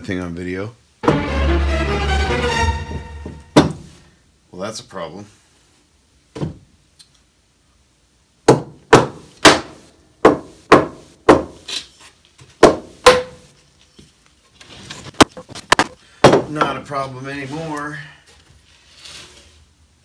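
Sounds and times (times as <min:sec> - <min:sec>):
sharp wooden knocks on board: 0:03.6 - 0:03.9, 0:08.5 - 0:11.6, 0:12.6 - 0:13.4, 0:15.2 - 0:16.7.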